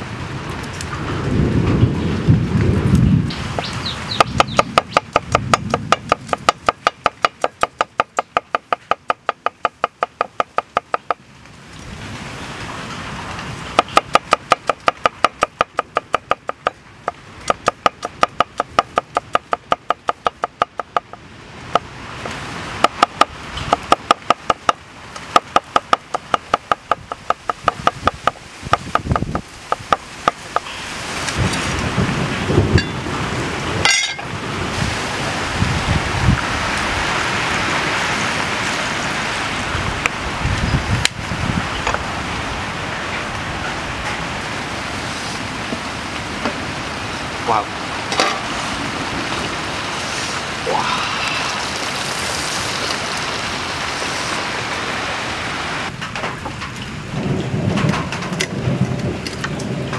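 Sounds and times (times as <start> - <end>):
cleaver chopping on wooden block: 4.2 - 11.2, 13.8 - 16.8, 17.5 - 21.1, 22.8 - 30.6.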